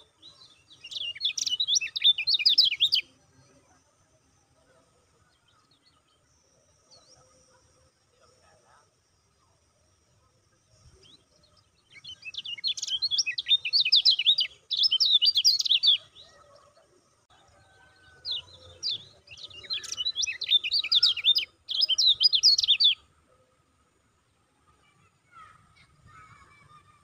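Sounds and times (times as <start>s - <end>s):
bird twittering chirps: 0.0s - 3.2s, 10.8s - 16.6s, 18.1s - 23.2s.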